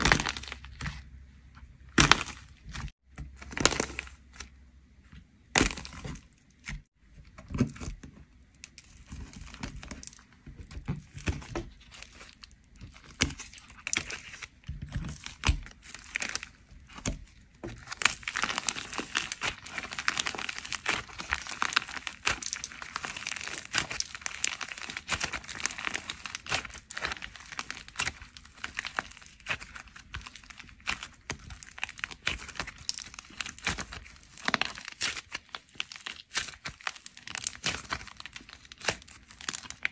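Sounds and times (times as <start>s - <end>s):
clay crinkling as kneaded: 0.0s - 39.9s
dried clay shells cracking: 8.5s - 39.9s.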